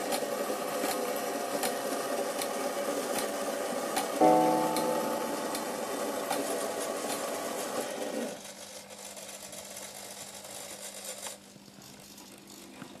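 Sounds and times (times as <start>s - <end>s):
low hum: 4.2s - 6.8s.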